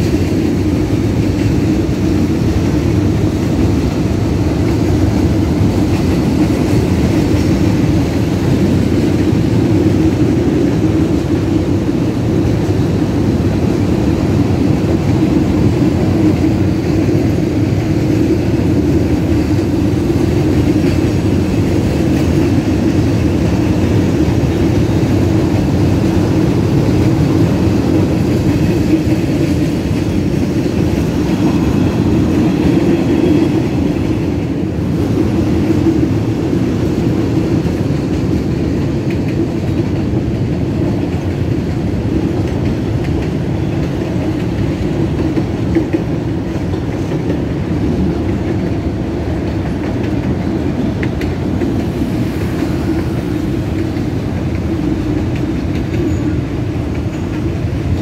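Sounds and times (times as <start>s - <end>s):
freight train rolling past: 0.0s - 58.0s.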